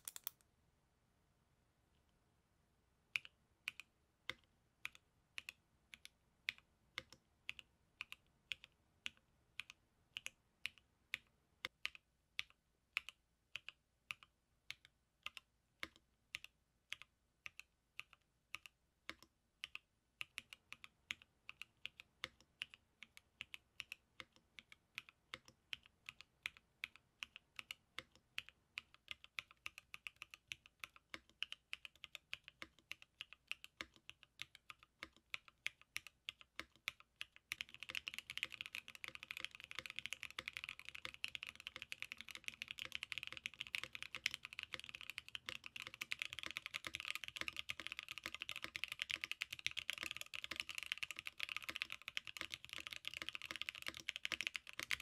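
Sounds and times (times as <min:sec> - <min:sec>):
mechanical keyboard typing: 0:00.0 - 0:00.4, 0:13.0 - 0:55.0.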